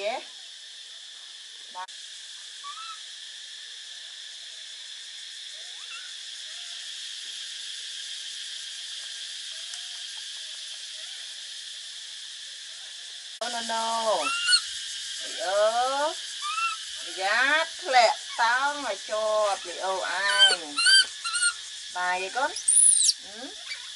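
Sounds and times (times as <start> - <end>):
insect chorus: 0.0 - 23.9
faint short rising calls: 22.6 - 23.9.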